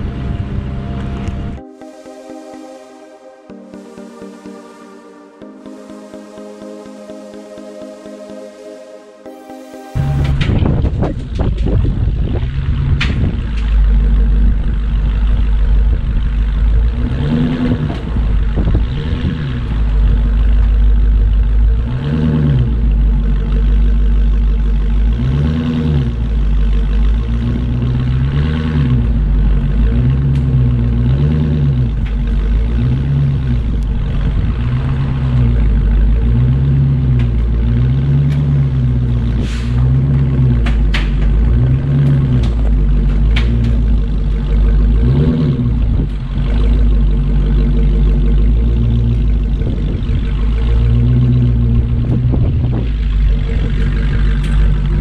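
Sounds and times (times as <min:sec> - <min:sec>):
diesel truck engine rumbling: 0:00.0 - 0:01.6, 0:10.0 - 0:55.0
rising and falling hum: 0:00.0 - 0:55.0.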